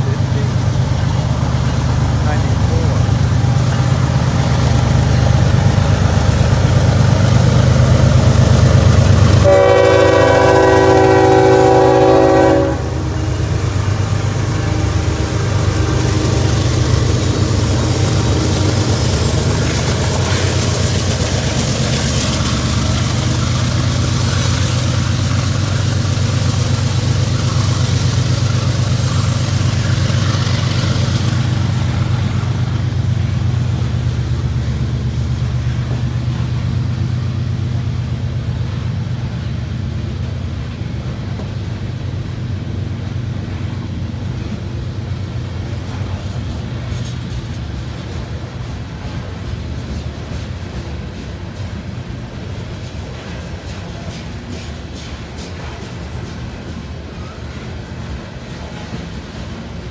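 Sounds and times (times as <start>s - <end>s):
diesel locomotive engine: 0.0s - 59.9s
train air horn: 9.4s - 13.4s.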